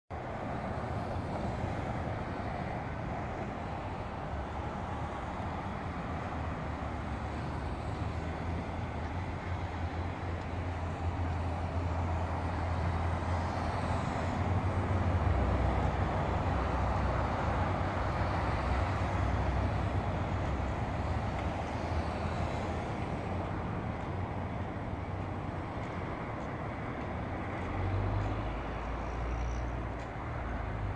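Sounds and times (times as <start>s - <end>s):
cars passing: 0.1s - 30.9s.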